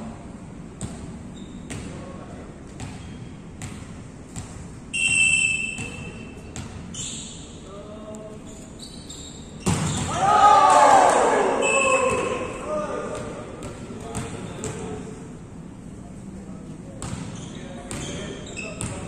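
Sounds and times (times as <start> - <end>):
high squeal: 5.0 - 7.6, 8.5 - 10.2
volleyballs smacked and bouncing: 9.6 - 10.3, 13.1 - 15.0
players' voices: 10.0 - 19.0.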